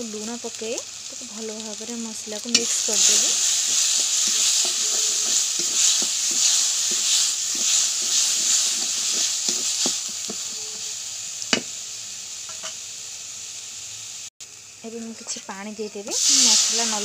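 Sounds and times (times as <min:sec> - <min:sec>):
spices sizzling in oil: 0:00.0 - 0:17.0
spatula scraping metal pan: 0:02.5 - 0:10.8
spatula tapping pan: 0:03.8 - 0:10.5.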